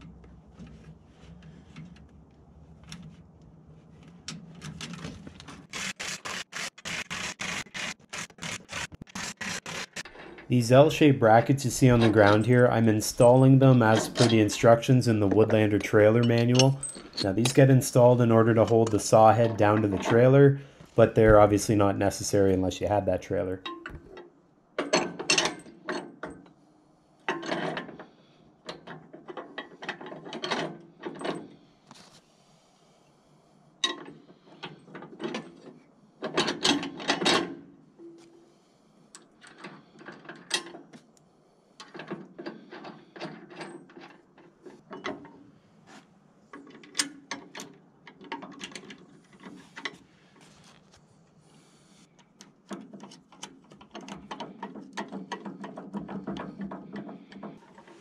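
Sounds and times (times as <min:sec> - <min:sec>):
ratchet clicking: 0:05.7 - 0:10.2.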